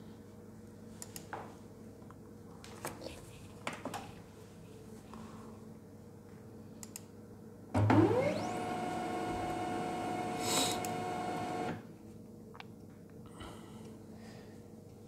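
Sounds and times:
laser printer mechanism whirring: 7.8 - 11.8.

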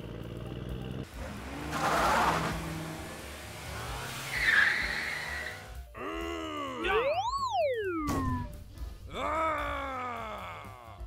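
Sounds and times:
cartoon car engine running: 0.0 - 5.8
tyre squeal: 1.7 - 2.6, 4.2 - 5.8.

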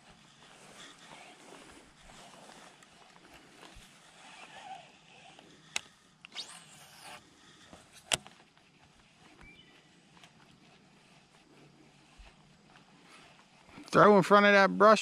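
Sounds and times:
rod swish: 6.2 - 7.2.

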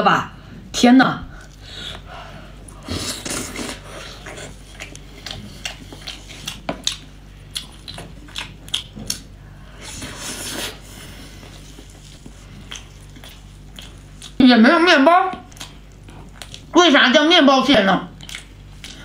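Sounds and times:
wet chewing and lip smacks: 4.2 - 9.3, 11.7 - 14.4, 15.3 - 16.7, 18.2 - 19.0.

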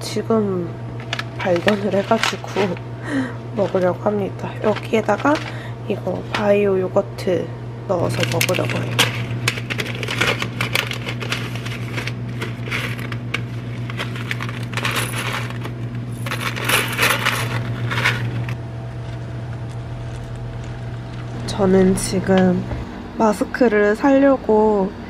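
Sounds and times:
low hum: 0.0 - 25.0
dry cereal rattling: 1.0 - 2.8, 9.6 - 18.5
plastic pouch crinkling: 1.0 - 2.8, 8.1 - 21.4.

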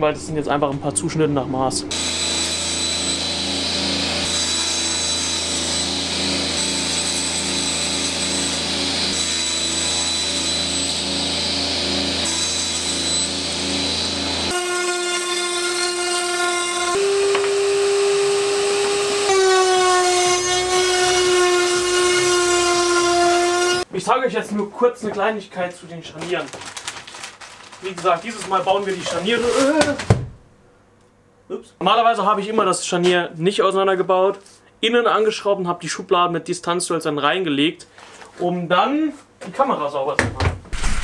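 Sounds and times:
table saw running: 1.9 - 23.9.

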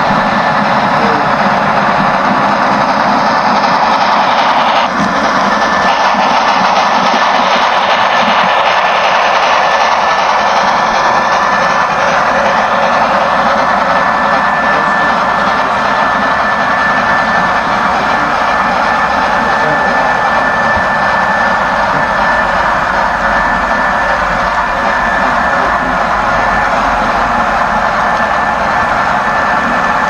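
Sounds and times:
thin high whine: 10.2 - 30.0.

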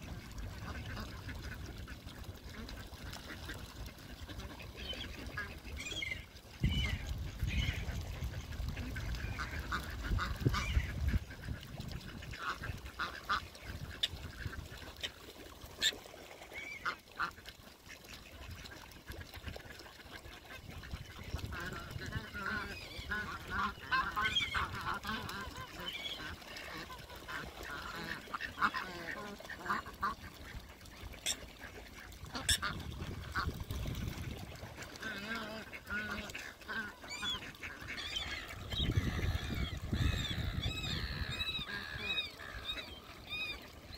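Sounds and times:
ducks quacking: 0.0 - 15.2, 15.8 - 43.9
geese honking: 32.3 - 33.5, 34.9 - 43.9.

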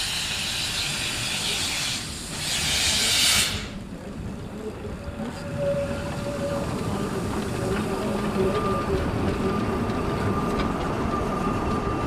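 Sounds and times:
steam hissing from locomotive: 0.0 - 3.8
train rumbling by: 0.0 - 12.0.

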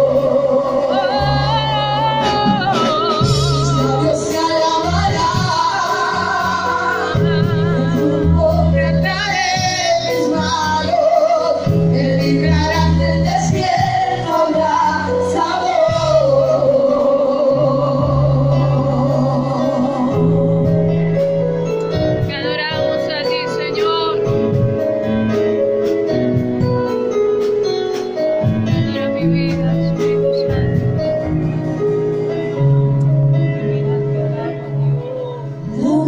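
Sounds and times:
voices singing with vibrato: 0.0 - 21.2.

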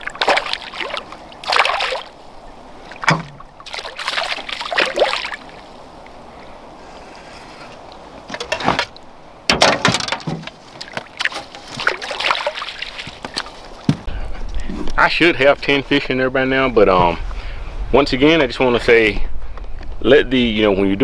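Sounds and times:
landing net splashing into water: 0.0 - 2.2, 2.9 - 5.7, 9.6 - 13.9
fish thrashing and splashing: 0.0 - 5.8, 10.7 - 13.9.

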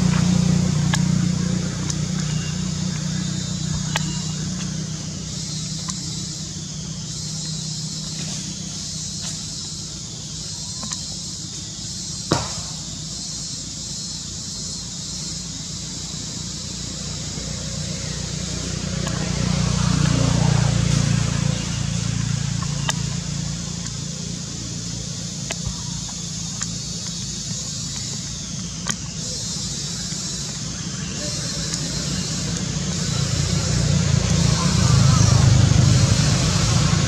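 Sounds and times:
low engine hum: 0.0 - 37.0
steady high hiss: 0.0 - 37.0
sharp clicks: 22.6 - 24.0, 25.2 - 32.8.

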